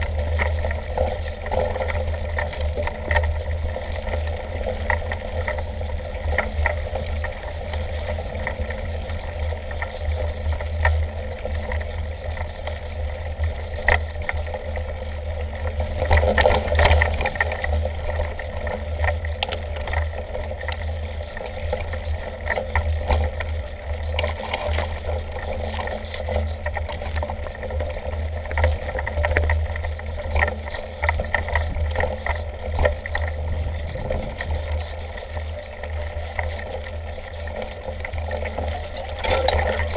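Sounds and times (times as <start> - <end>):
bike rattling over bumps: 0.0 - 39.9
bike tyres rumbling on trail: 0.0 - 39.9.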